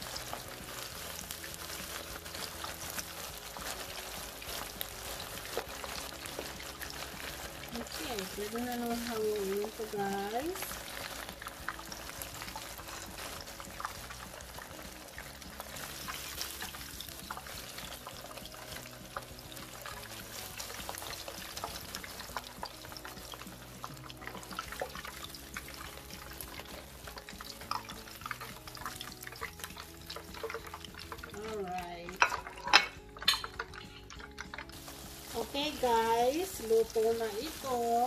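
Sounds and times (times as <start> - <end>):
meat deep-frying in oil: 0.0 - 38.0
metal spoon scraping and clinking: 32.2 - 34.3.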